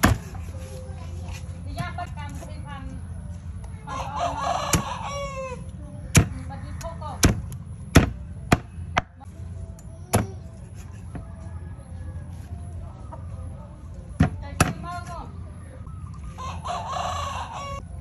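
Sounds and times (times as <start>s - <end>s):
cleaver chopping on wooden block: 0.0s - 0.3s, 7.2s - 9.1s
rooster crowing: 3.9s - 5.7s, 16.2s - 18.0s.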